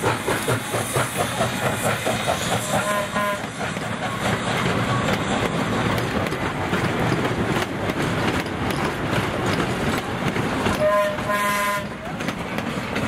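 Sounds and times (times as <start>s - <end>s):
train wheels rolling on rails: 0.0s - 13.0s
clicks over rail joints: 3.4s - 13.0s.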